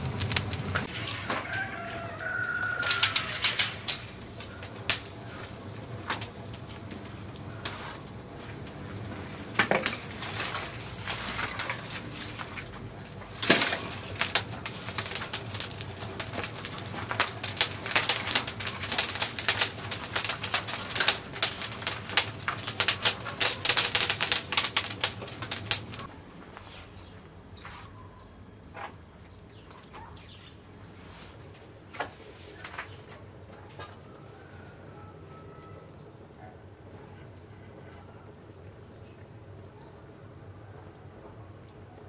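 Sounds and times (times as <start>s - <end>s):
twigs crackling in fire: 0.0s - 26.7s, 30.7s - 36.1s
branches snapping: 9.6s - 26.1s.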